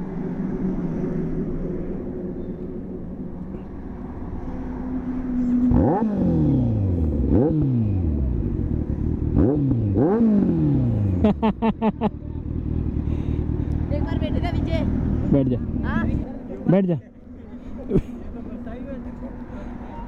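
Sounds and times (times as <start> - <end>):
engine revving throttle blips: 0.0 - 11.6
motorcycle engine idling: 12.0 - 20.0.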